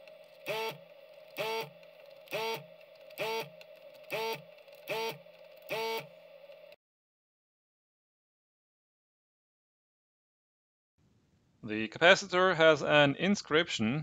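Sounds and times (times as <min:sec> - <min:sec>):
desoldering pump whirring: 0:00.0 - 0:06.8.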